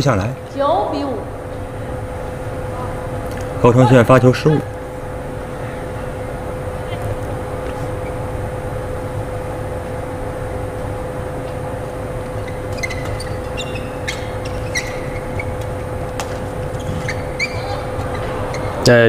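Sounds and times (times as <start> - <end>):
low rumble and hum of hall: 0.0 - 19.0
shoes squeaking on court: 6.9 - 8.3, 12.2 - 18.9.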